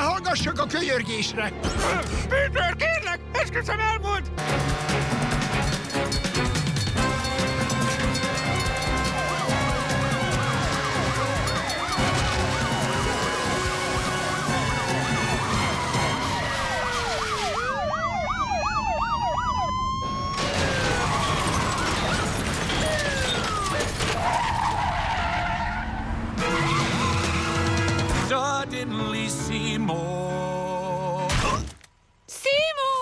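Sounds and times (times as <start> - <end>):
action music: 0.0 - 18.5, 26.4 - 31.6
car engine noise: 4.4 - 17.6, 20.3 - 28.3
police sirens wailing: 7.0 - 28.2.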